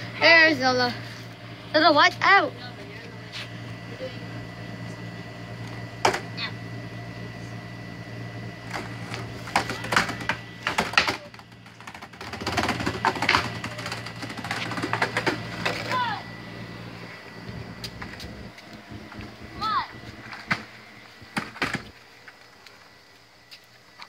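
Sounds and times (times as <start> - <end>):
steady low hum: 0.0 - 24.0
skateboard wheels rolling: 8.6 - 22.9
skateboard clack: 8.7 - 16.0.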